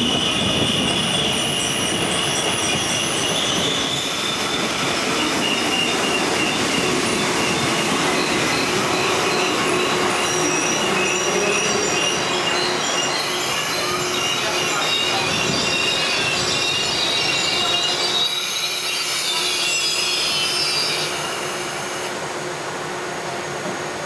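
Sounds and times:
train wheels squealing: 0.0 - 22.1
train rumbling: 0.0 - 24.0.

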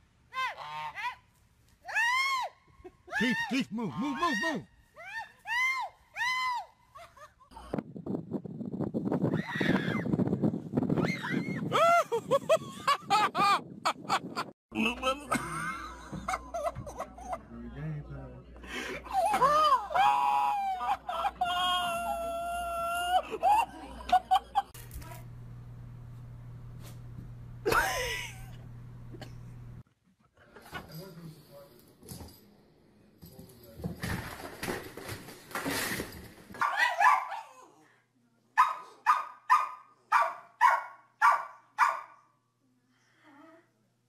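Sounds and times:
person screaming: 3.1 - 4.7, 19.1 - 23.3
faint low hum: 22.1 - 29.8
small dog barking: 36.6 - 37.6, 38.6 - 42.2.

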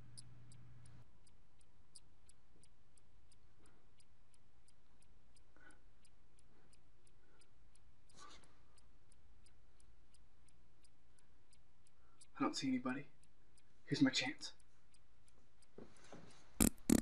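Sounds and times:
faint regular ticking: 0.0 - 17.0.

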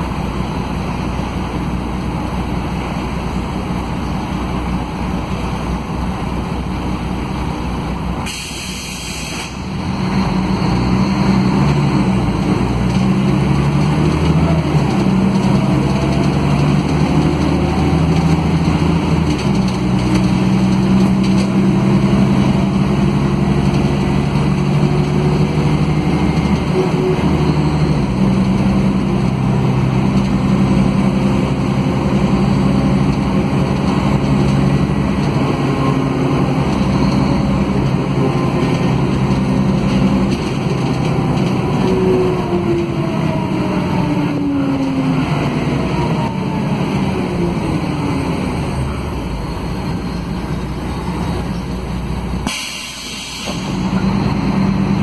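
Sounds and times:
bus diesel engine under load: 0.0 - 55.0
air hiss: 8.2 - 9.6, 52.4 - 53.9.

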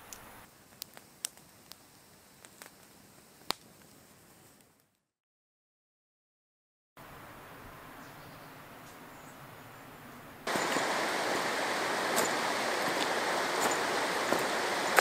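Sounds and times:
footsteps crunching on pebbles: 10.5 - 15.0
river water rushing: 10.5 - 15.0.

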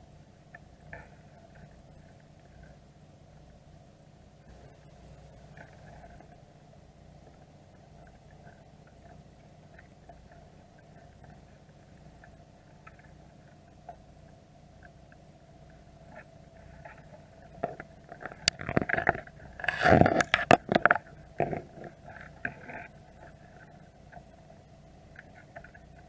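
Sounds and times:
steady low hum: 0.0 - 26.0
crab shells clicking and scratching: 17.6 - 22.7.

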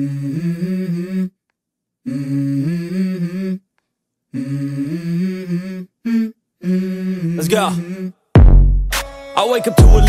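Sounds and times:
hummed vocal phrase: 0.0 - 1.4, 2.0 - 3.6, 4.3 - 8.2.

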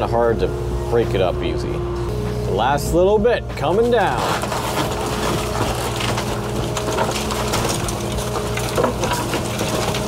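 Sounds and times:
excavator diesel engine running: 0.0 - 10.0
wood and debris cracking: 3.6 - 10.0.

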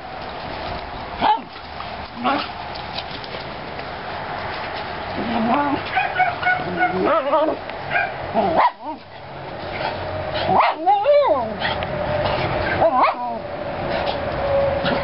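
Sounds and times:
dogs whining and yipping: 5.4 - 11.8, 12.6 - 15.0.

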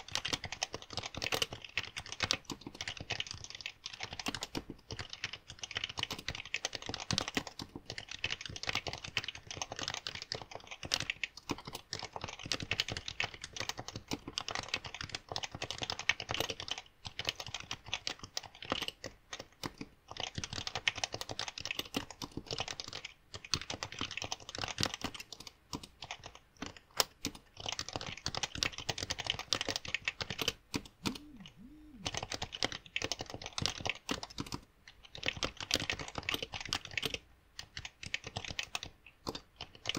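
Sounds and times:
fast keyboard typing: 0.0 - 39.9.

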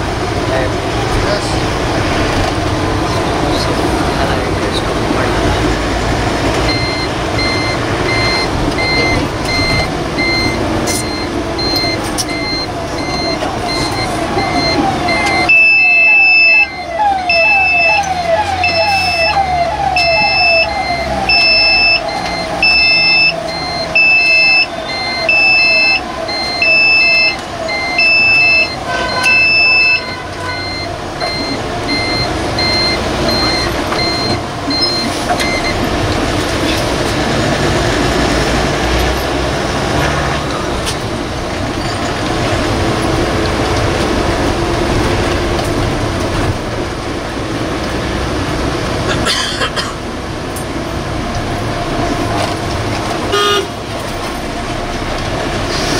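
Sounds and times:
bus running and road noise: 0.0 - 55.9
fainter beep: 6.7 - 19.4, 20.0 - 35.8
loud electronic alarm beeping: 6.7 - 35.8, 53.3 - 53.8.

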